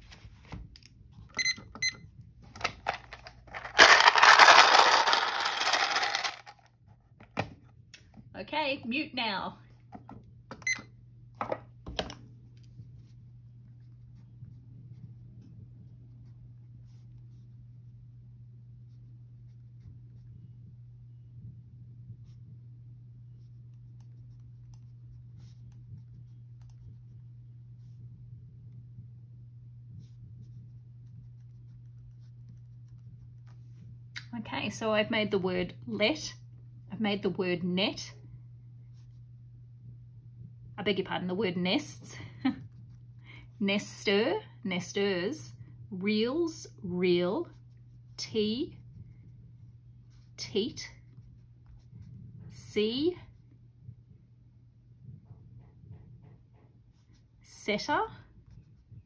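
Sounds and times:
low electrical hum: 0:00.0 - 0:59.0
letter cubes rattling in plastic: 0:02.6 - 0:06.6.

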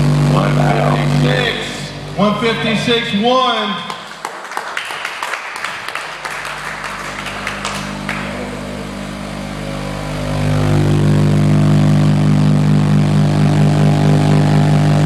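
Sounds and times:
subwoofer low bass tone: 0:00.0 - 0:03.2, 0:07.6 - 0:15.0.

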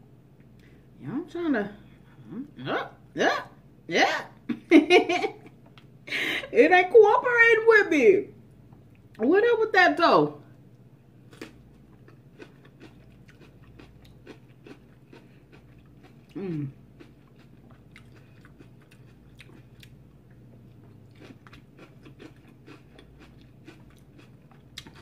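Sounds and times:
person chewing crunchy food: 0:11.2 - 0:25.0
person humming: 0:16.4 - 0:16.8.

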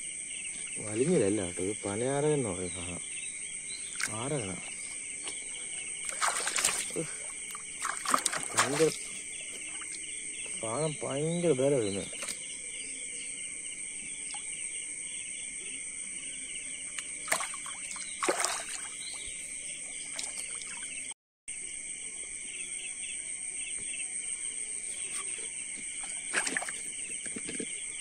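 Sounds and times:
insect chorus chirring: 0:00.0 - 0:28.0
knocks and splashes in water: 0:03.9 - 0:11.2, 0:11.8 - 0:12.6, 0:17.0 - 0:21.1, 0:25.8 - 0:27.8.

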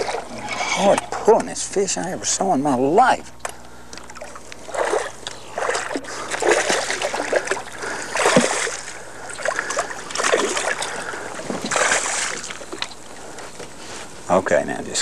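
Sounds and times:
fish thrashing and splashing: 0:00.0 - 0:01.1, 0:04.0 - 0:13.4.

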